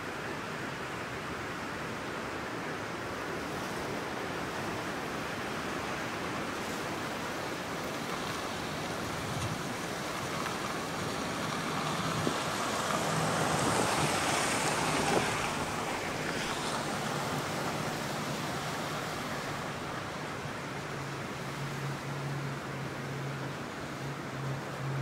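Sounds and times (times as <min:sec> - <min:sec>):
truck driving on wet gravel: 0:06.8 - 0:22.2.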